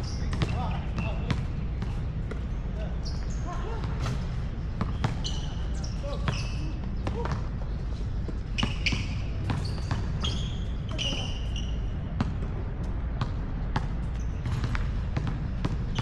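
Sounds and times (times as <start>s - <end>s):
basketball bouncing: 0.2s - 2.5s, 4.8s - 5.4s, 8.3s - 11.2s, 13.2s - 16.0s
short high squeaks: 8.6s - 11.9s.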